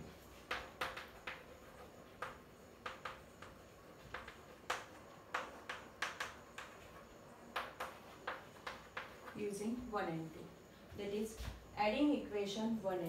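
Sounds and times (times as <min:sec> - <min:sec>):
chalk tapping and scratching: 0:00.0 - 0:09.5.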